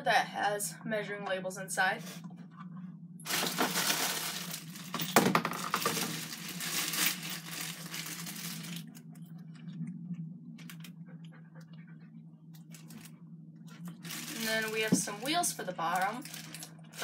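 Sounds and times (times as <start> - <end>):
plastic packaging crinkling: 3.3 - 9.1, 12.6 - 13.1, 13.7 - 17.0.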